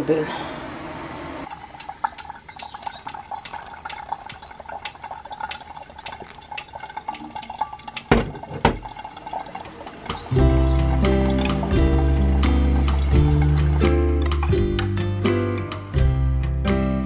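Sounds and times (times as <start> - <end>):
hot water pouring: 1.4 - 14.9
ticking drips: 1.4 - 15.8
music: 10.3 - 17.0.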